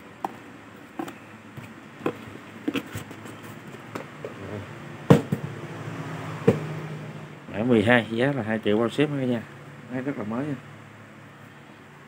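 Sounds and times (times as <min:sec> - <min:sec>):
handling knocks and clicks: 0:01.0 - 0:04.4.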